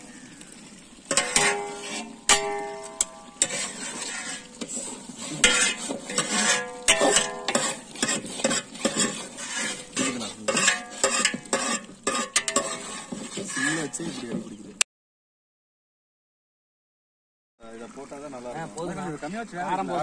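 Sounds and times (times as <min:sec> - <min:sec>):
ladle scraping cooking pot: 0:00.5 - 0:14.6
metal clanks: 0:01.1 - 0:04.8, 0:05.4 - 0:14.0.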